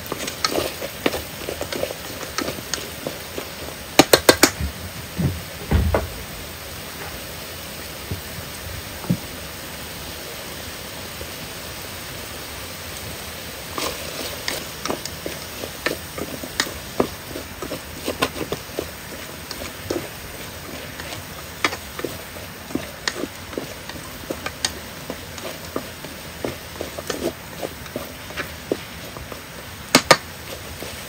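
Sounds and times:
chopsticks tapping metal pot: 0.0s - 4.6s, 13.8s - 31.0s
food cooking hiss: 0.0s - 31.0s.

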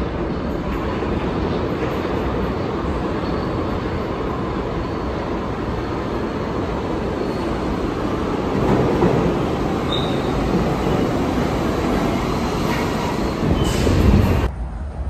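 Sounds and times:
subway train wheels rumbling: 0.0s - 15.0s
brief high squeak: 9.9s - 10.4s, 12.7s - 14.1s.

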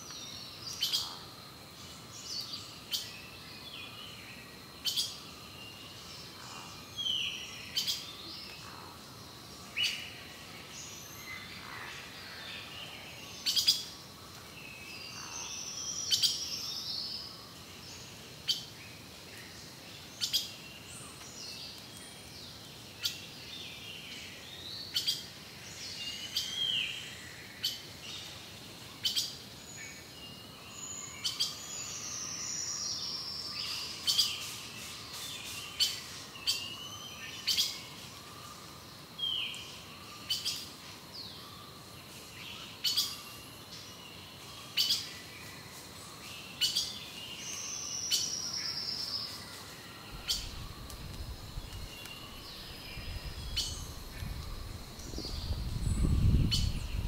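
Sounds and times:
birds chirping: 50.0s - 57.0s.

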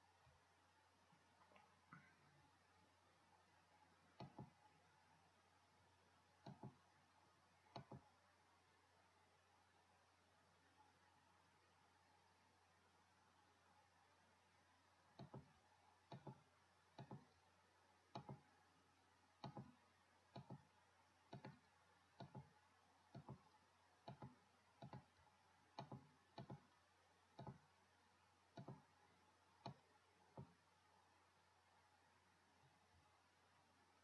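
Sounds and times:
computer mouse clicks: 4.1s - 4.8s, 6.4s - 6.9s, 7.6s - 8.2s, 15.1s - 18.6s, 19.3s - 27.9s, 28.5s - 30.7s.

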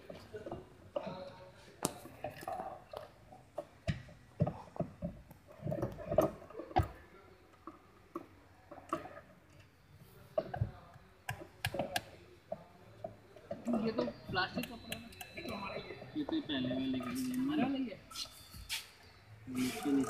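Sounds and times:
muffled voices: 9.9s - 20.0s.

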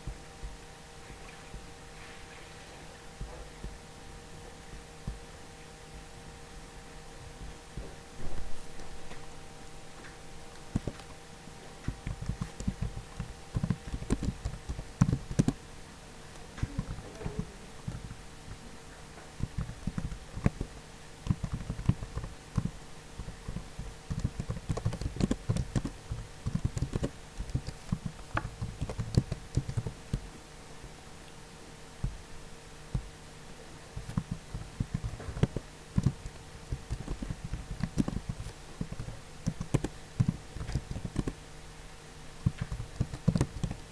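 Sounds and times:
faint steady hum: 0.0s - 43.9s
computer keyboard key clicks: 11.9s - 15.6s, 21.3s - 22.7s, 23.5s - 30.2s, 34.0s - 41.4s, 42.4s - 43.8s.

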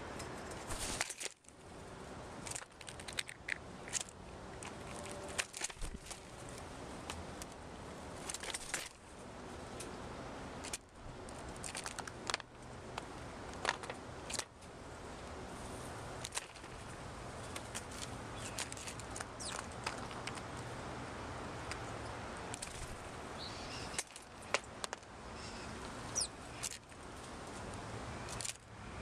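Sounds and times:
outdoor background hiss: 0.0s - 29.0s
bird bill tapping peanuts: 2.4s - 7.6s, 10.6s - 14.5s, 16.2s - 20.7s, 21.6s - 23.0s, 23.7s - 25.2s.

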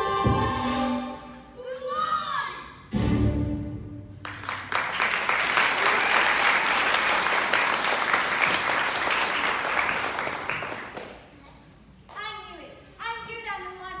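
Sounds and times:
audience applauding: 4.2s - 11.4s.

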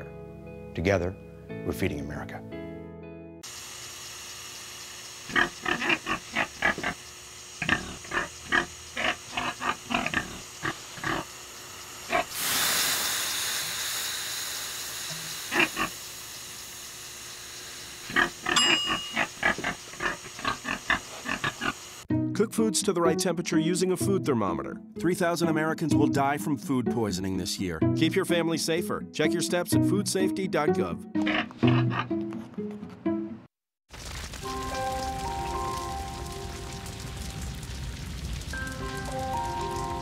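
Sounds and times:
steam hissing off hot stones: 3.5s - 18.5s
pig grunting: 5.3s - 7.0s, 7.6s - 11.3s, 15.5s - 15.9s, 19.2s - 21.8s, 31.2s - 32.2s.

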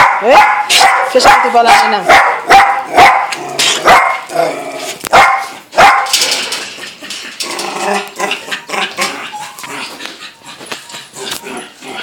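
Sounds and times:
dog barking: 0.0s - 4.3s, 5.1s - 6.2s.

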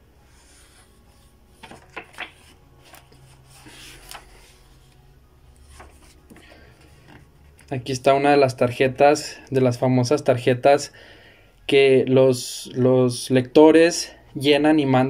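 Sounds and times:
magazine pages rustling: 0.4s - 7.6s.

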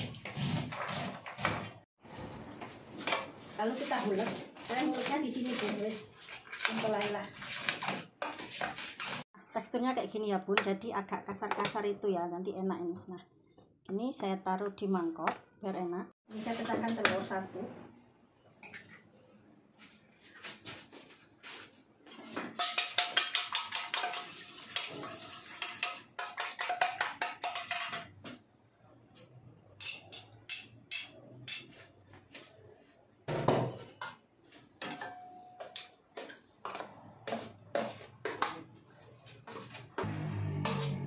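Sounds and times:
utensil beating egg in metal bowl: 3.6s - 9.3s, 22.6s - 28.0s.

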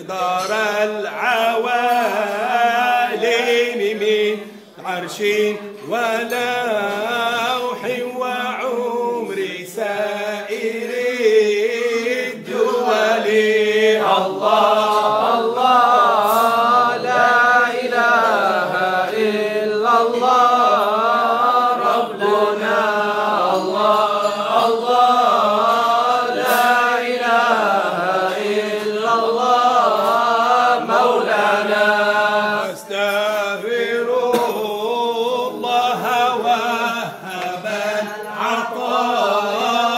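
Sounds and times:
voices chanting devotional verses: 0.0s - 39.9s.

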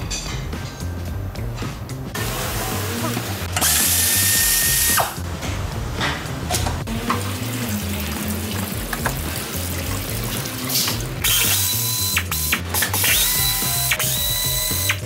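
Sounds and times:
background music: 0.0s - 15.0s
coolant pouring and splashing: 6.8s - 11.9s.

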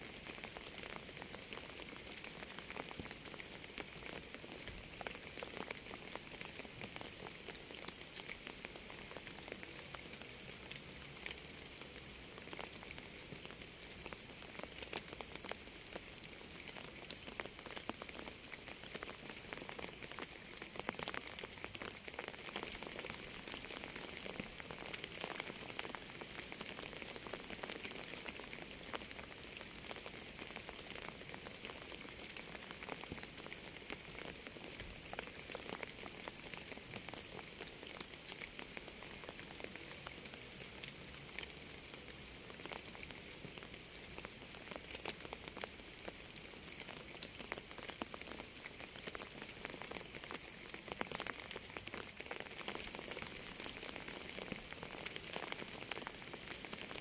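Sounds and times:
steady rainfall: 0.0s - 57.0s.

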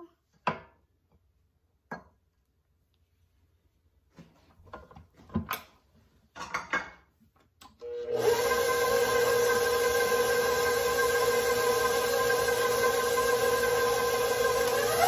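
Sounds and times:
stand mixer motor whining: 7.8s - 15.0s.

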